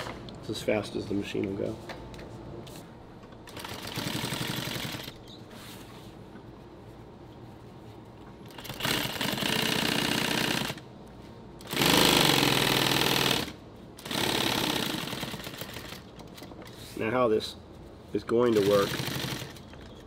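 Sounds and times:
sewing machine stitching: 0:03.5 - 0:05.2, 0:18.5 - 0:19.7.

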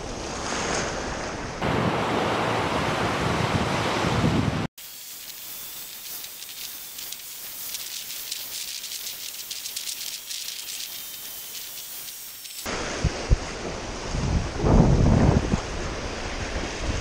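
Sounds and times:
wind and waves: 0:00.0 - 0:04.7, 0:12.7 - 0:17.0
surf washing up sand: 0:00.3 - 0:04.7, 0:12.6 - 0:17.0
wind thumps on microphone: 0:12.7 - 0:15.9.

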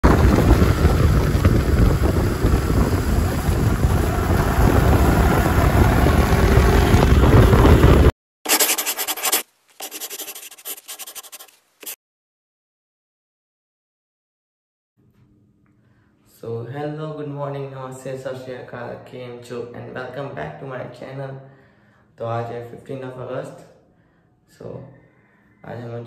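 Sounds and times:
wind rumble on microphone: 0:00.0 - 0:08.1.

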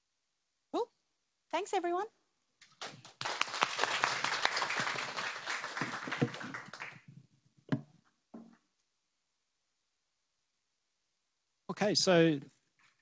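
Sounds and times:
audience applauding: 0:02.7 - 0:07.1.

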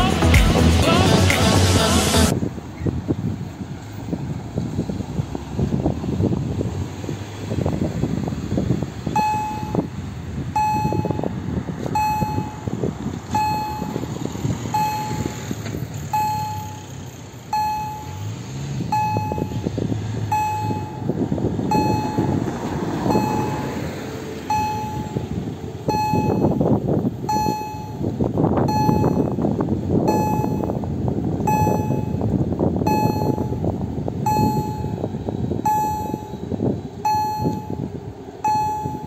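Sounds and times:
road traffic: 0:00.0 - 0:39.0
wind: 0:00.0 - 0:39.0
electronic crossing bell ding: 0:09.2 - 0:09.8, 0:10.6 - 0:11.2, 0:12.0 - 0:12.7, 0:13.4 - 0:14.0, 0:14.7 - 0:15.3, 0:16.1 - 0:16.8, 0:17.5 - 0:18.2, 0:18.9 - 0:19.6, 0:20.3 - 0:21.1, 0:21.7 - 0:22.3, 0:23.1 - 0:23.6, 0:24.5 - 0:25.2, 0:25.9 - 0:26.6, 0:27.3 - 0:28.0, 0:28.7 - 0:29.4, 0:30.1 - 0:30.7, 0:31.5 - 0:32.2, 0:32.9 - 0:33.6, 0:34.3 - 0:35.0, 0:35.6 - 0:36.3, 0:37.0 - 0:37.8, 0:38.4 - 0:39.0.

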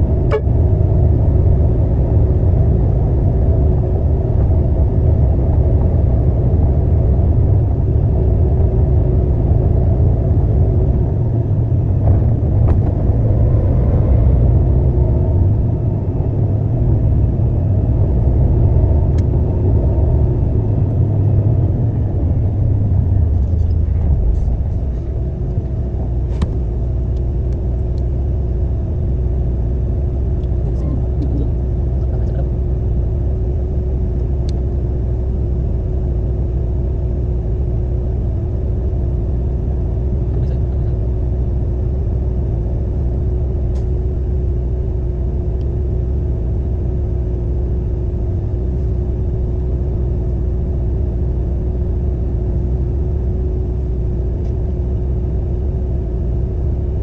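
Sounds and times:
constant hum: 0:00.0 - 0:57.0
diesel engine rumbling: 0:00.0 - 0:57.0.

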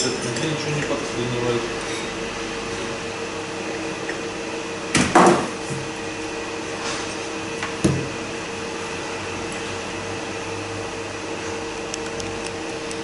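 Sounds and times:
steady mechanical hum: 0:00.0 - 0:13.0
knock on workbench: 0:05.0 - 0:05.5.

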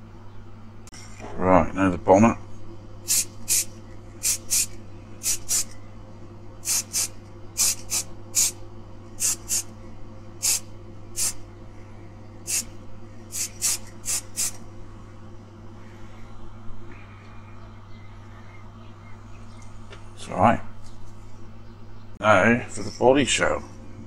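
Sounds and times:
spray paint can hissing: 0:03.1 - 0:05.7, 0:06.6 - 0:08.6, 0:09.2 - 0:09.7, 0:10.4 - 0:11.4, 0:12.5 - 0:12.7, 0:13.3 - 0:14.6.

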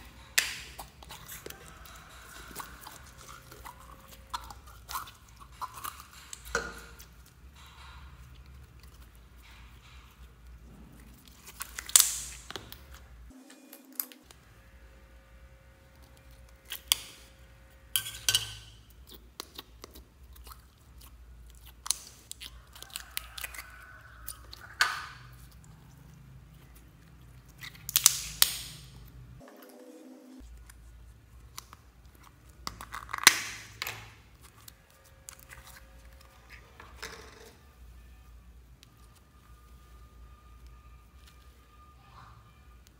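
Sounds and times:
slime squelching and popping: 0:11.0 - 0:13.0, 0:27.3 - 0:29.1.

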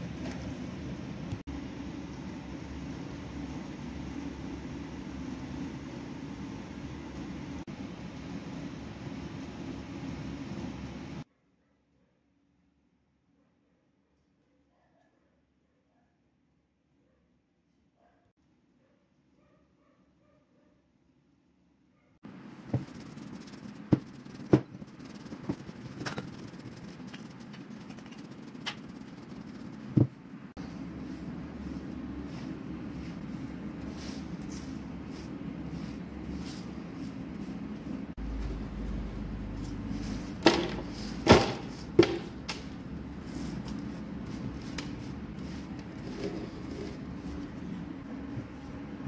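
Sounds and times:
steady background hum: 0:00.0 - 0:11.4, 0:22.0 - 0:49.0.

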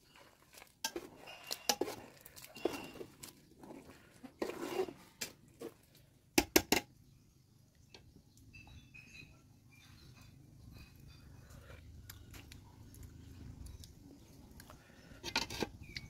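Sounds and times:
metal ladle scraping a pot: 0:00.0 - 0:05.8, 0:15.0 - 0:16.0
sharp knocks on a pot: 0:06.4 - 0:06.9.

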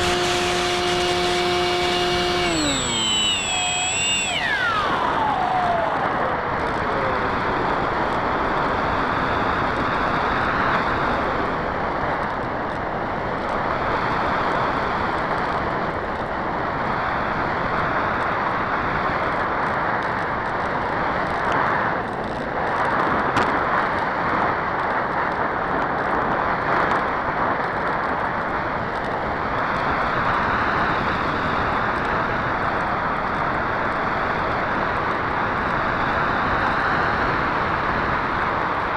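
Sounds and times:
electric motor whine: 0:00.0 - 0:08.1
wind rushing over microphone: 0:00.0 - 0:38.9.

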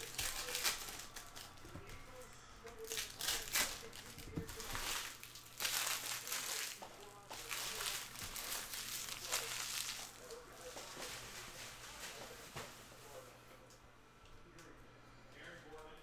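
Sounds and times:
foil wrapper crinkling: 0:00.0 - 0:12.8
cards rustling: 0:00.0 - 0:13.2.

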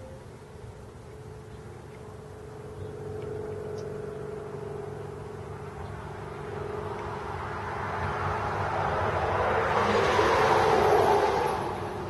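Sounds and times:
passing vehicle rushing: 0:02.6 - 0:12.0.

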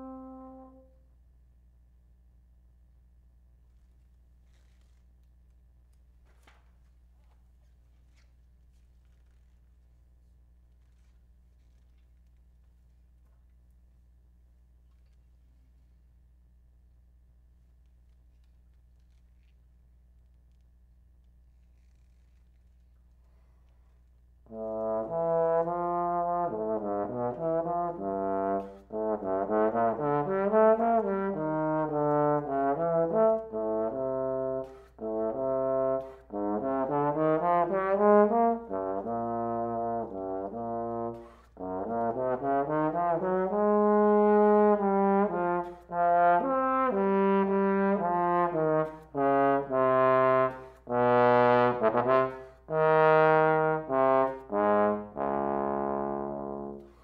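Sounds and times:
bass trombone playing: 0:00.0 - 0:01.0, 0:24.5 - 0:57.0.

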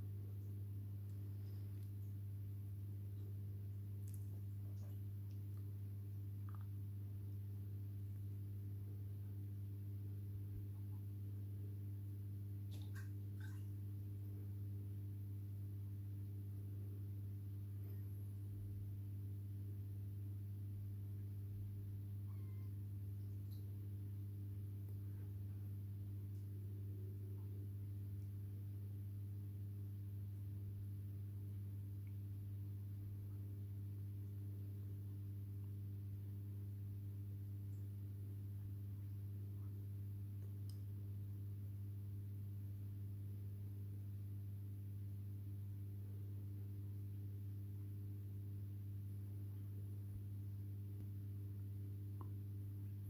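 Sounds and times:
aquarium equipment electrical hum: 0:00.0 - 0:53.0.

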